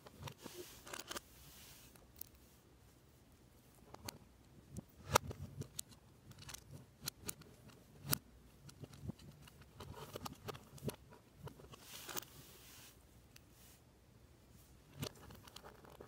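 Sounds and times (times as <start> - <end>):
plastic parts clicking together: 4.8 - 12.3
loose pieces rattling: 5.1 - 12.2.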